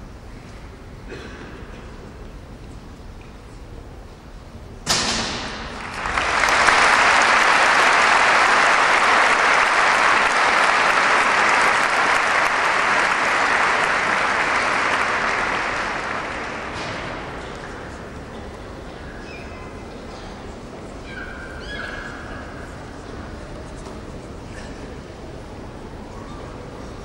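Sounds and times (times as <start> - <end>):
audience applauding: 5.6 - 18.2.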